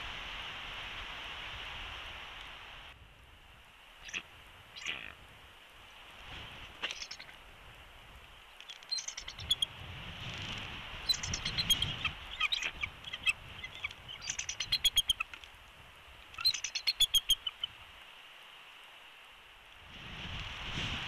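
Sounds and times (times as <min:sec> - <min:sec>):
eagle chittering calls: 0:04.0 - 0:05.2, 0:06.8 - 0:07.4, 0:08.6 - 0:09.8, 0:11.0 - 0:15.4, 0:16.4 - 0:17.8.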